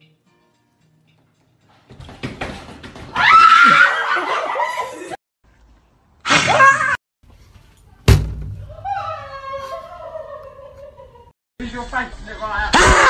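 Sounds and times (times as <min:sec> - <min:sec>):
shrieking laughter: 0:03.5 - 0:05.2, 0:06.3 - 0:07.0, 0:08.9 - 0:11.3.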